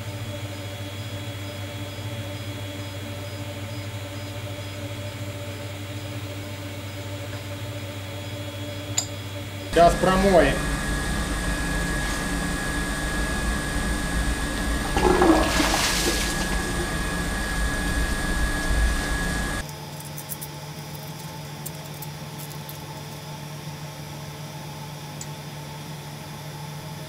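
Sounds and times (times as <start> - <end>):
low steady hum: 0.0 - 19.6
water rushing through pipe: 9.8 - 19.6
thin whistling tone: 15.6 - 19.6.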